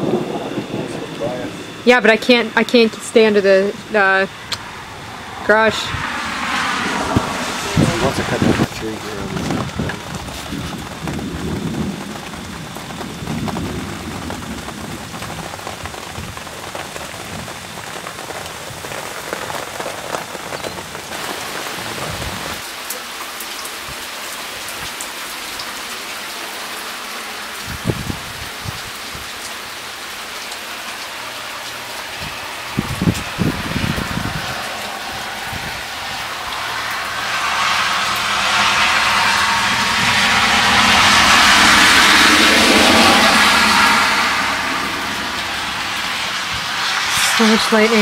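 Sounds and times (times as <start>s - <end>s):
low rumble of thunder: 0.0s - 2.4s, 3.7s - 22.6s, 31.8s - 47.1s
heavy rain falling: 0.0s - 48.0s.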